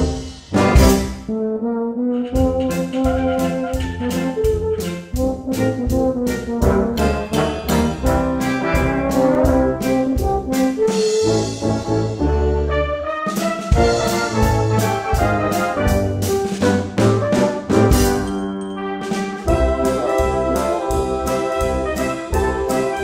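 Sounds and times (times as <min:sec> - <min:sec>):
brass band playing lively tune: 0:00.0 - 0:23.0
drum kit ticking steady beat: 0:02.3 - 0:11.3, 0:13.4 - 0:18.5, 0:19.1 - 0:23.0.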